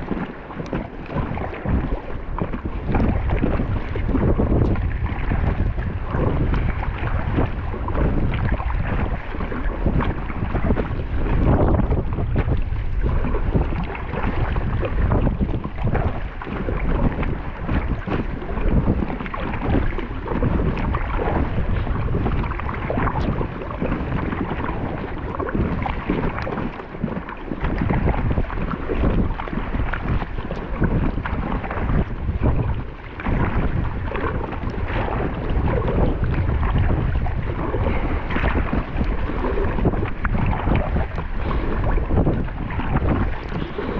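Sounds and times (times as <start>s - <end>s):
water splashing against kayak: 0.0s - 43.9s
wind buffeting microphone: 0.0s - 43.9s.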